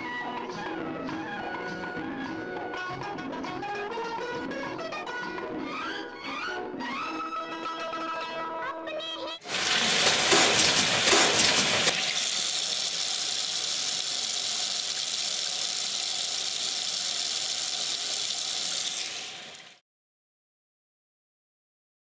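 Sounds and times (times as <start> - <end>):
water running from tap: 9.4 - 19.8.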